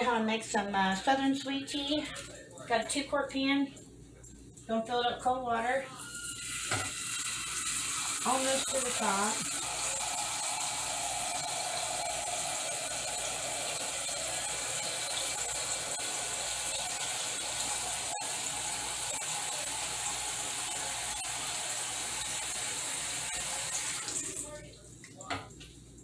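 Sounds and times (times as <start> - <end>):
water running into a metal saucepan: 6.0 - 25.6.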